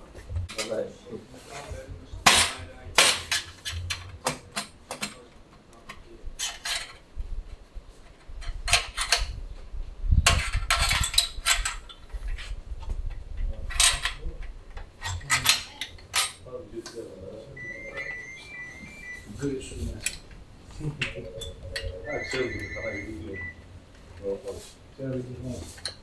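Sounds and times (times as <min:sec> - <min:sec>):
metal tools clinking and clanking: 0:06.4 - 0:07.0, 0:15.0 - 0:16.4.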